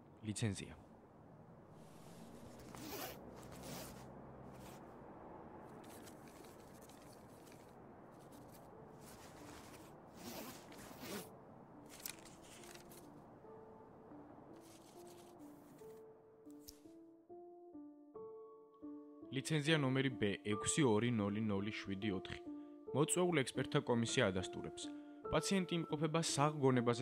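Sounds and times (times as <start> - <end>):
paper pages rustling: 1.8 - 4.8, 5.7 - 11.3, 11.9 - 13.2, 14.6 - 16.0.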